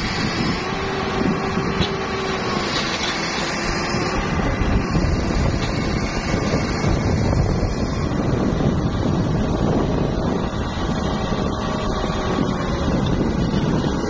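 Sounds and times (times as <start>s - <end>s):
soil sliding out: 0.0s - 8.5s
tractor diesel engine running: 0.0s - 14.0s
wind buffeting microphone: 0.0s - 14.0s.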